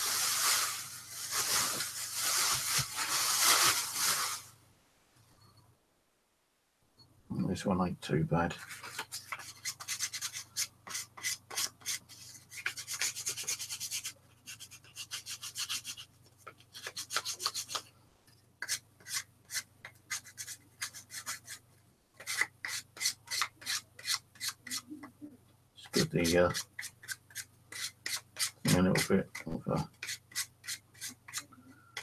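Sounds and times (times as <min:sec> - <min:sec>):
sandpaper scratching on cork: 0:08.6 - 0:17.8, 0:18.6 - 0:21.6, 0:22.2 - 0:24.9, 0:25.9 - 0:31.5.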